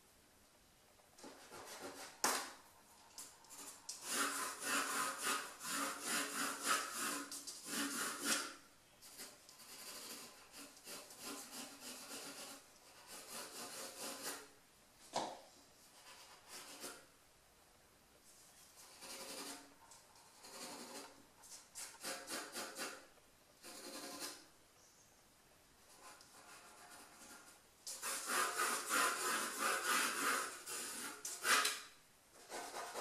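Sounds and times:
pencil scratching on paper: 1.2s - 2.2s, 3.5s - 14.5s, 15.9s - 17.1s, 18.8s - 24.5s, 25.8s - 31.8s, 32.4s - 33.0s.

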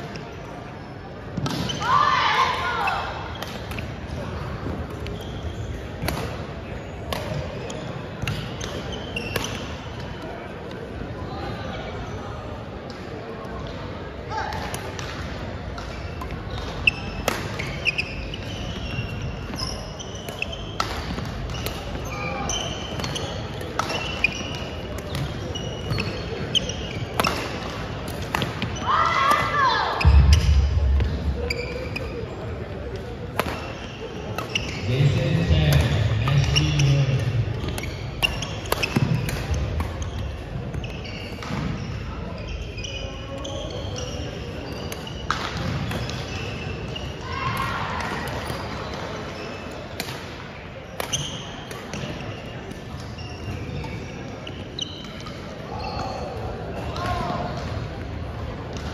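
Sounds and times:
sneakers squeaking on hardwood floor: 2.7s - 6.1s, 6.8s - 10.2s, 15.8s - 50.0s, 50.8s - 58.9s
racket hitting shuttlecock: 27.1s - 28.7s, 33.0s - 33.7s, 37.6s - 40.0s
voices echoing in hall: 28.6s - 58.9s.

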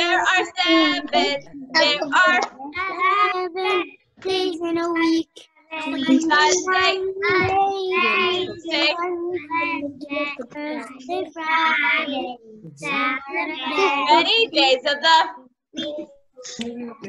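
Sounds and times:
children and woman singing: 5.8s - 11.1s.

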